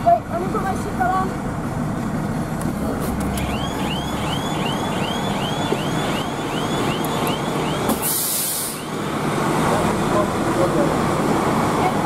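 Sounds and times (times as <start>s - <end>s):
diesel engine running: 0.0s - 12.0s
backing alarm chirping: 3.3s - 9.0s.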